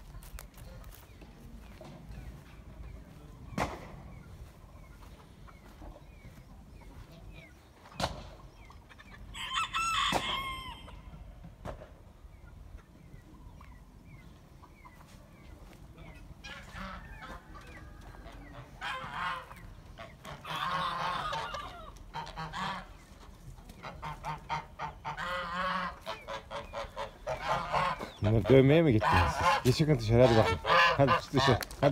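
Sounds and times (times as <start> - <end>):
geese honking: 14.3 - 31.9.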